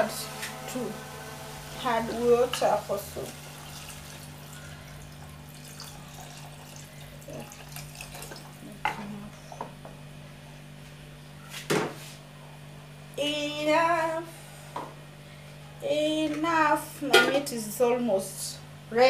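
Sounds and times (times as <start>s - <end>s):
water pouring into saucepan: 1.3s - 8.6s.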